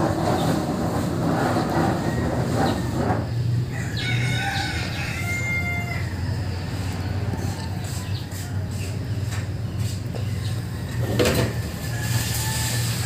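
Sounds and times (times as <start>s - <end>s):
rooster crowing: 3.6s - 8.4s, 10.4s - 13.0s.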